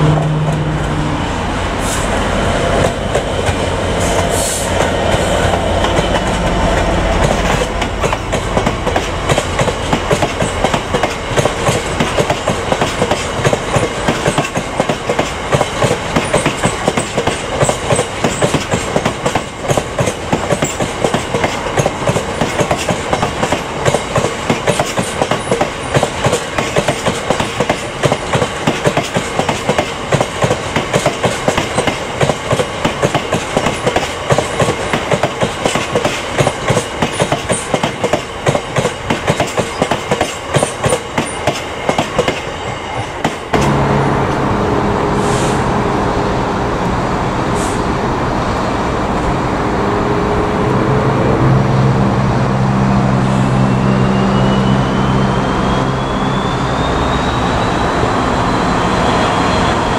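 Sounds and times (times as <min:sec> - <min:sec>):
diesel locomotive engine running: 0:00.0 - 0:59.9
freight wagons clickety-clack: 0:04.8 - 0:43.4
rising whine: 0:49.0 - 0:59.9.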